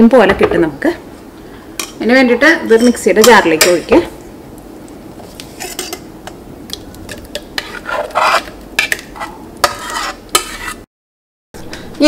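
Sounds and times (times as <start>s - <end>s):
utensil scraping metal pan: 5.2s - 6.4s, 7.1s - 10.9s.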